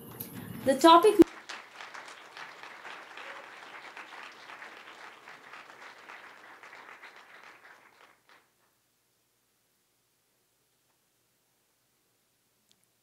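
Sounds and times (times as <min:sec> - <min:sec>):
audience applauding: 0:00.4 - 0:08.8.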